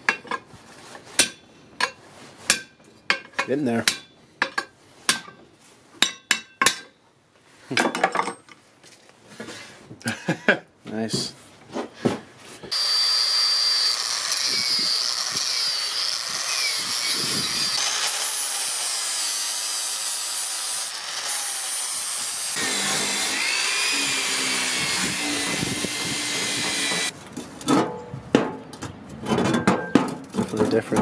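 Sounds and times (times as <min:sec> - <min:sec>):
angle grinder grinding steel: 0:12.7 - 0:27.1.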